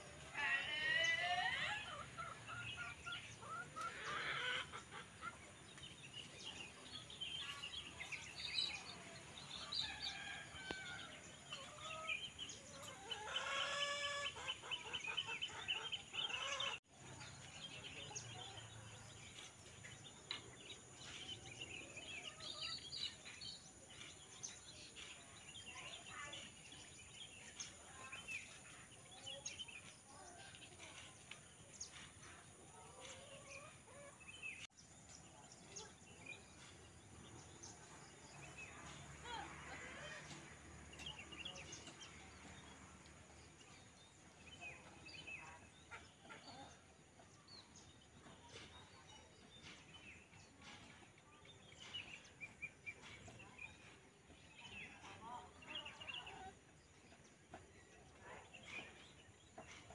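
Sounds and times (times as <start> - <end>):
birds chirping and calling: 0.0 - 42.8.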